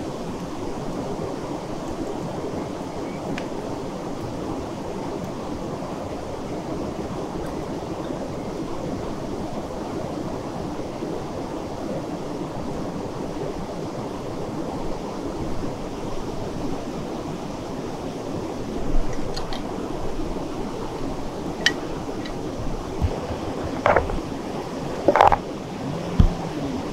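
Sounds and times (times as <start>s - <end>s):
mountain river rushing: 0.0s - 26.9s.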